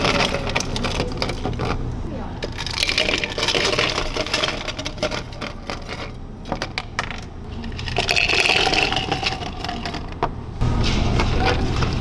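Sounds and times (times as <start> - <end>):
ice cubes poured into cups: 2.4 - 6.1, 7.6 - 10.2
single ice cubes clinking: 2.5 - 6.1, 6.7 - 10.2.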